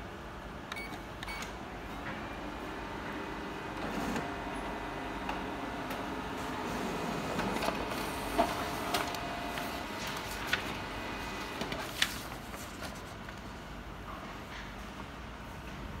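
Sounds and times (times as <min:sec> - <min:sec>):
laser printer whirring: 0:01.7 - 0:14.0
paper sheets rustling: 0:07.4 - 0:13.6.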